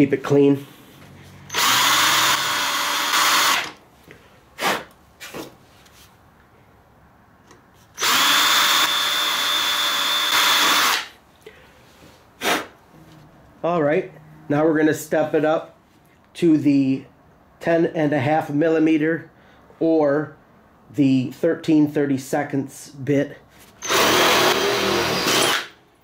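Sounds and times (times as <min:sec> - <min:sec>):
cordless drill boring through metal: 0:01.5 - 0:03.8, 0:08.0 - 0:11.1, 0:23.8 - 0:25.8.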